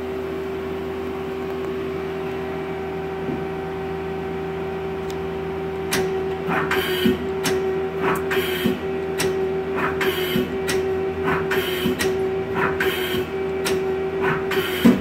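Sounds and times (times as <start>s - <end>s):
lathe machine hum: 1.9s - 15.0s
mechanical clatter: 5.9s - 15.0s.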